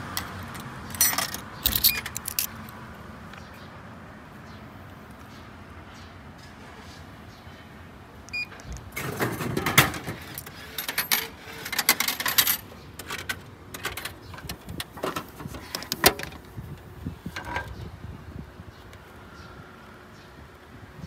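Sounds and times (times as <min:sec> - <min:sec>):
vending machine beep: 0:08.3 - 0:08.6.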